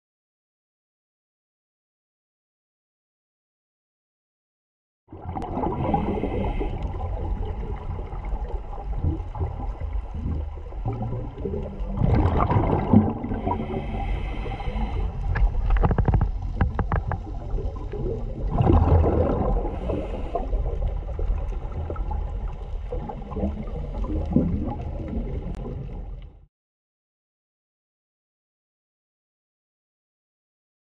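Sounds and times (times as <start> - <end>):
bubbling underwater: 5.1 - 26.5
underwater rumbling water: 5.1 - 26.5.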